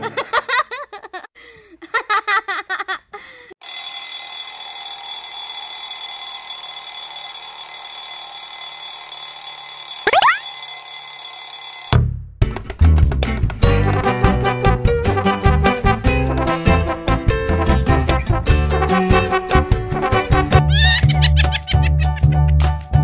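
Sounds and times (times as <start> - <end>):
steady alarm tone: 3.6 - 12.0
rapid warbling chirps: 10.1 - 10.4.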